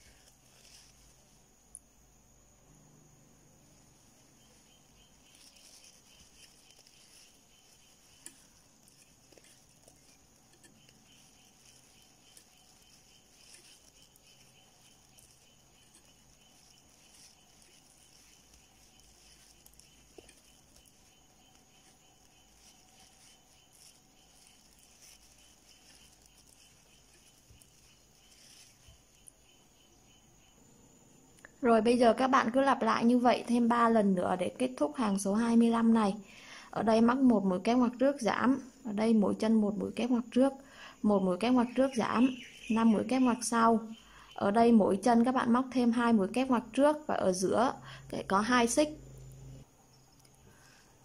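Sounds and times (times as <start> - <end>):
crochet hook clicks and yarn rustles: 0.0 - 1.9, 3.5 - 30.0.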